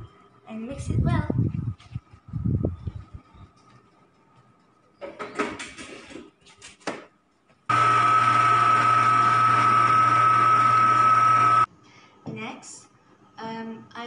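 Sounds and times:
stand mixer motor whining: 7.7 - 11.7.

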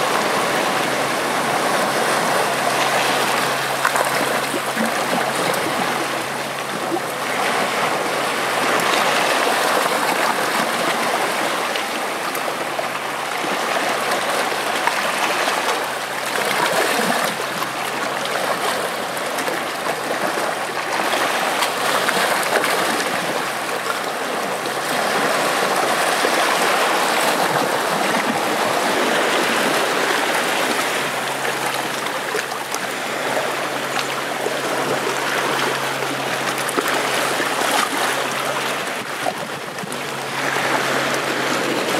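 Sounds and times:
seawater washing over rocks: 0.0 - 41.9.

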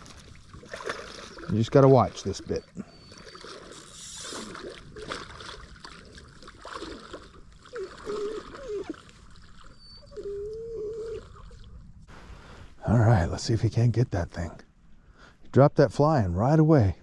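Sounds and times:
water splashing: 0.0 - 11.8
puppy whining: 2.4 - 3.8, 7.7 - 9.0, 9.6 - 11.7.

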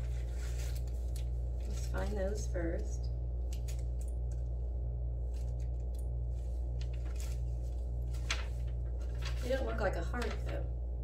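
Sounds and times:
plastic bag crinkling: 0.0 - 2.6, 5.2 - 10.6
steady low hum: 0.0 - 11.0.

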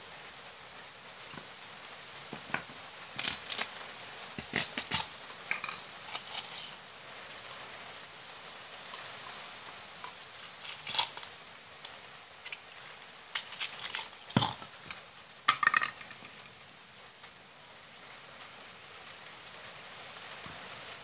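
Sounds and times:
metal parts clinking and rattling: 3.2 - 6.8, 10.4 - 16.4.

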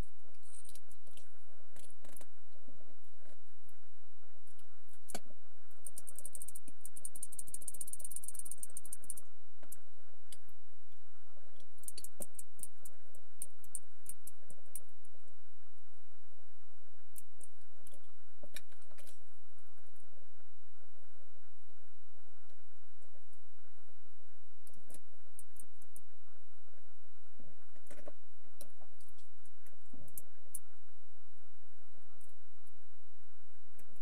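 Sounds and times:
small sharp clicks: 4.5 - 10.5, 11.6 - 14.9.

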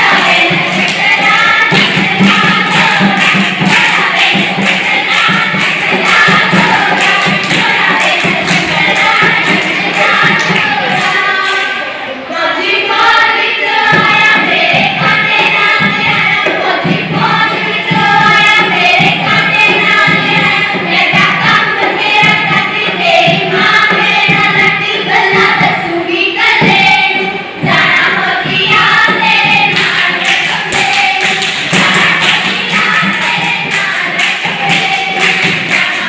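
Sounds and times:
music with a steady beat: 0.0 - 10.9
women singing folk song: 0.0 - 36.0.

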